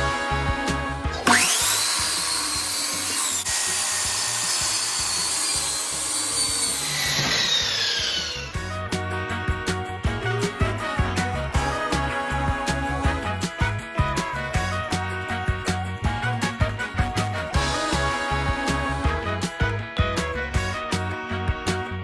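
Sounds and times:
miter saw whining: 1.1s - 8.7s.

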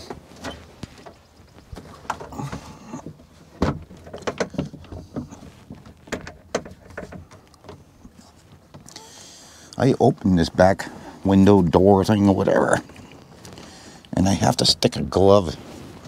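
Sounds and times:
clicks knocks and rattles: 0.0s - 9.0s.

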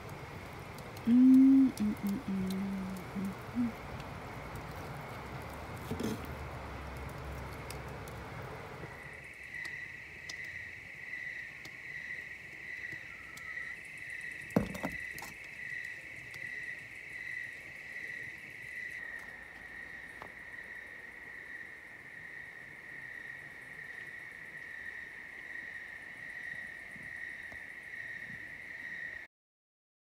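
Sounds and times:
even hiss: 0.0s - 10.1s
crickets chirping: 0.0s - 29.3s.

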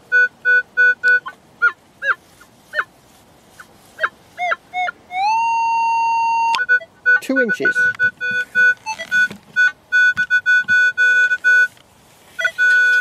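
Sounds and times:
metal detector swooping chirps: 6.2s - 11.7s
metal detector short beeps: 6.4s - 11.8s, 12.4s - 13.0s.

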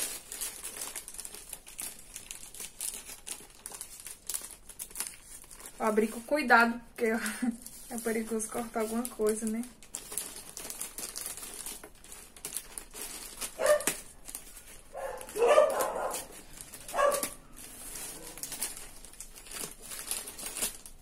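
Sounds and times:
plastic bag crinkling: 0.0s - 21.0s
scissors cutting plastic: 8.0s - 21.0s
dog barking: 13.6s - 14.0s, 14.9s - 16.3s, 16.9s - 17.4s.

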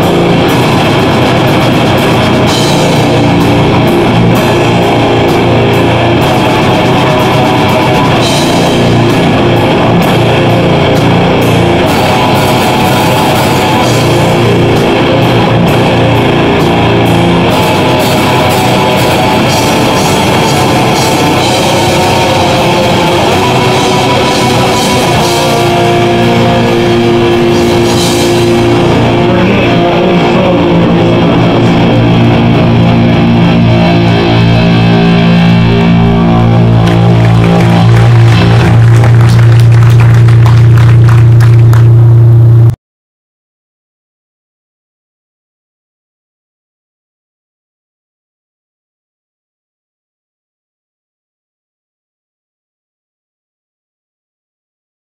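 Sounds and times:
distorted electric guitars: 0.0s - 42.8s
metal band playing live: 0.0s - 42.8s.

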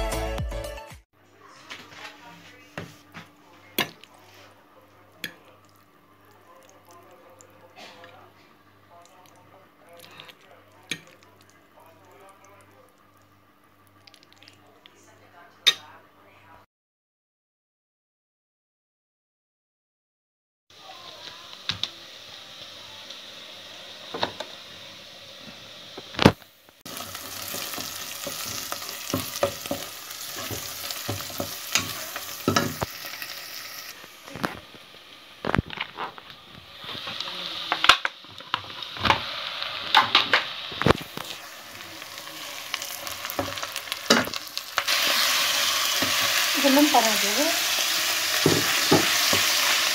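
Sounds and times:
food sizzling in hot oil: 20.8s - 49.9s.

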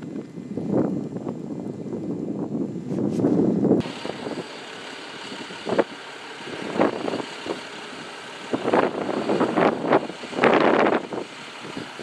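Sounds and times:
diesel engines running: 3.8s - 12.0s.

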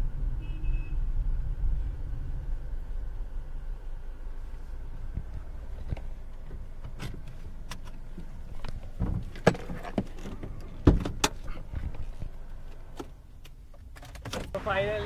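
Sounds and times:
car rumble: 0.0s - 15.0s
seatbelt latch clicks and clunks: 5.8s - 11.7s.

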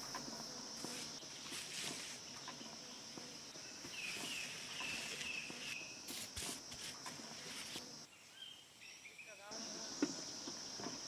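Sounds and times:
footsteps on stone path: 0.0s - 8.1s
high insect drone: 0.0s - 11.0s
bird chirping: 2.2s - 6.1s, 7.4s - 10.8s.

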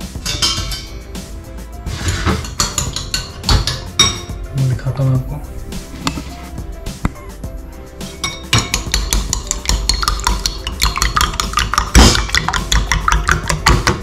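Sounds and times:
fork beating eggs in bowl: 8.5s - 14.0s.

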